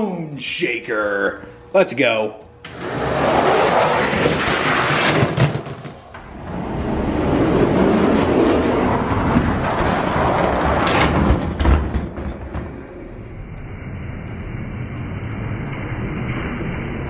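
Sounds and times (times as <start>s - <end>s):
toy trucks rolling on plastic track: 2.7s - 11.2s.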